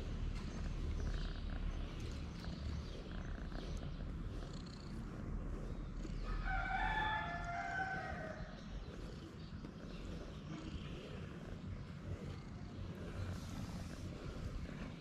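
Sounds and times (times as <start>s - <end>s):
cat purring: 0.0s - 15.0s
rooster crowing: 6.2s - 8.4s.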